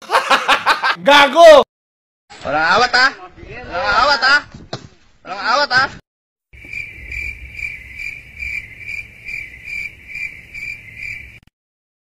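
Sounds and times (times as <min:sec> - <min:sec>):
cricket chirping: 0:06.6 - 0:11.5.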